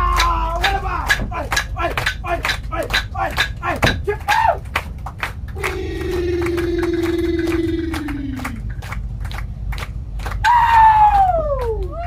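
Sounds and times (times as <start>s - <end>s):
low hum: 0.0s - 12.0s
loud high falling call: 5.6s - 8.7s
man's long vocal call: 5.6s - 8.7s.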